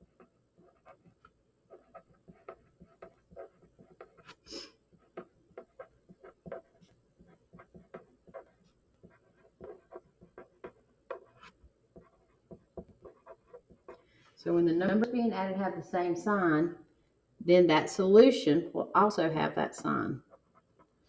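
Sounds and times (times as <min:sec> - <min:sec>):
pen scratching on paper: 0:00.0 - 0:14.1, 0:20.3 - 0:21.0.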